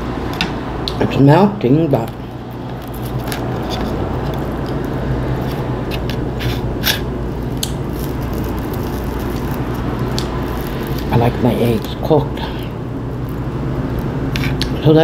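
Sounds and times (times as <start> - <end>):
low background hum: 0.0 - 15.0
eating clicks and scrapes: 2.0 - 14.8.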